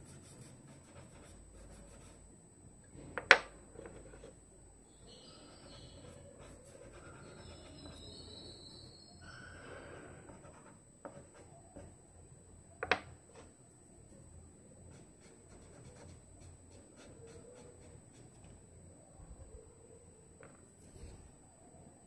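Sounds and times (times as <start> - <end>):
fingertips rubbing pastel on paper: 5.5 - 8.0, 14.9 - 18.4.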